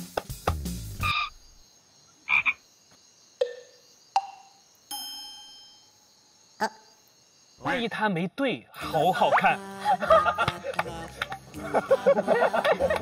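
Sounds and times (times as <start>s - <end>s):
background music: 0.0s - 1.2s, 8.7s - 13.0s
ringing chime tone: 4.9s - 6.1s.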